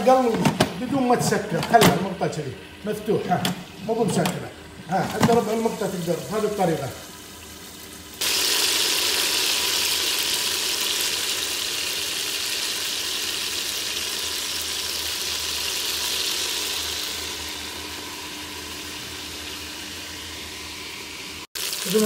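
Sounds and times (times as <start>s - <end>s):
chicken sizzling in oil: 4.8s - 22.0s.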